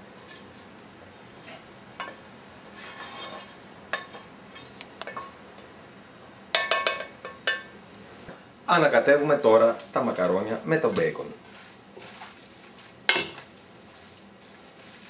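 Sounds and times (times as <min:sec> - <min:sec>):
spatula scraping a frying pan: 0:02.6 - 0:05.4, 0:10.9 - 0:15.0
pan clanking: 0:13.1 - 0:13.5.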